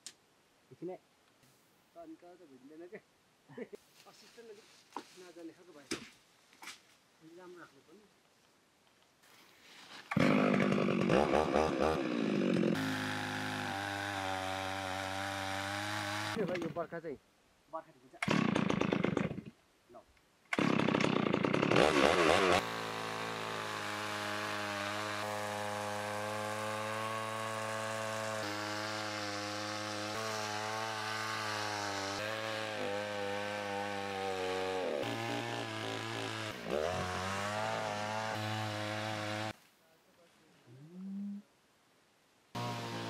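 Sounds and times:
chainsaw cutting log: 10.0s - 16.8s, 18.2s - 19.6s, 20.5s - 39.6s, 42.6s - 43.0s.

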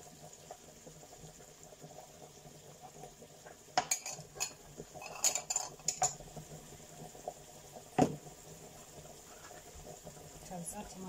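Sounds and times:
kitchen utensils clinking: 3.8s - 6.2s.

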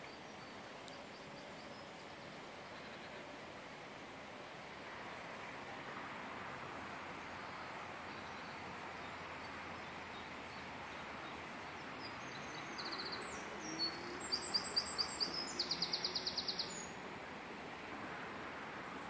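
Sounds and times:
songbird singing trills: 0.0s - 3.3s, 7.2s - 17.0s
steady outdoor hiss: 0.0s - 19.0s.

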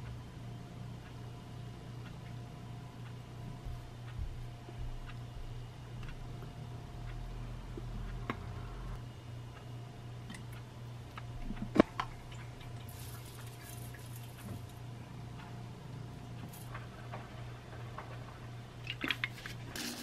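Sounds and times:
steady low hum: 0.0s - 20.0s
plastic bag rustling: 12.9s - 14.7s.

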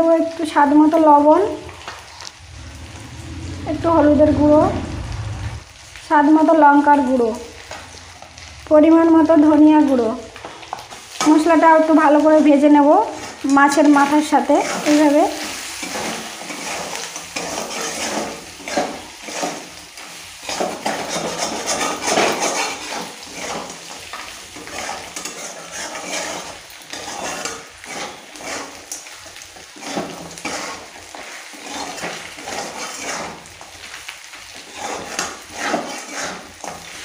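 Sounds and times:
food sizzling in hot oil: 0.0s - 37.0s
spatula scraping metal pan: 14.6s - 19.8s, 20.4s - 29.0s, 29.7s - 33.5s, 34.6s - 37.0s.

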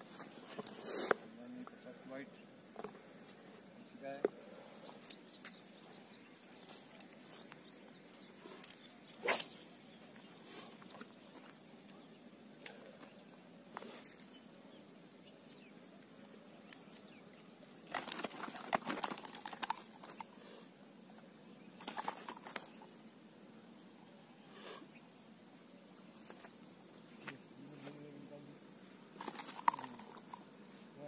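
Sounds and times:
fish thrashing on grass: 17.9s - 20.2s.

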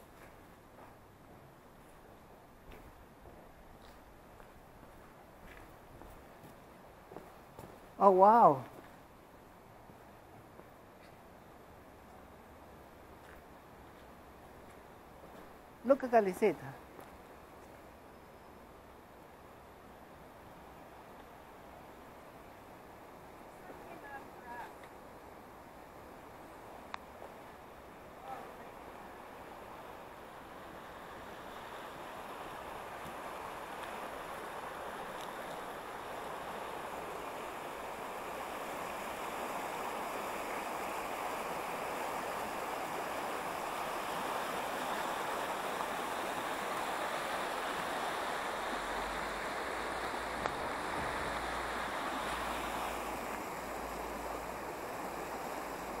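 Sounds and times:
rushing river water: 18.7s - 56.0s.

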